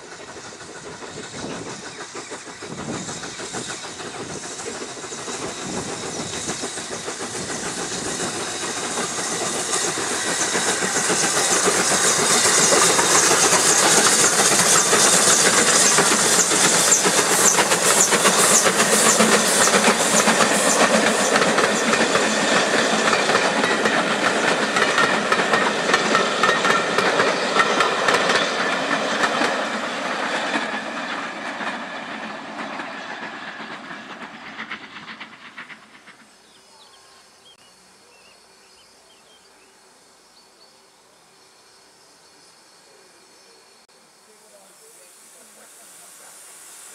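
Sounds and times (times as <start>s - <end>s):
train wheels clattering over rail joints: 0.0s - 36.4s
steam locomotive exhaust beats: 0.0s - 38.1s
steam hiss: 0.0s - 40.5s, 41.3s - 46.9s.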